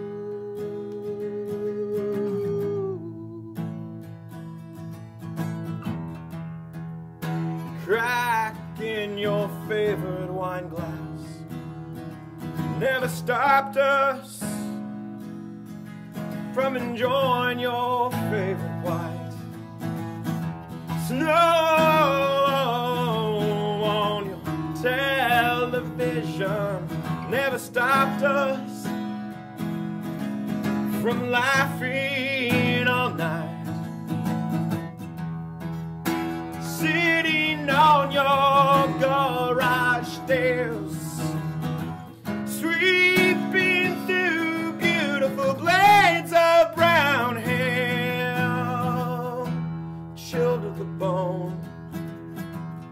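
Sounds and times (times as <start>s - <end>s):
man singing: 0.0s - 3.9s, 7.6s - 11.6s, 12.6s - 15.0s, 16.2s - 19.8s, 20.8s - 29.3s, 30.4s - 34.3s, 36.1s - 51.9s
acoustic guitar playing: 0.0s - 52.9s.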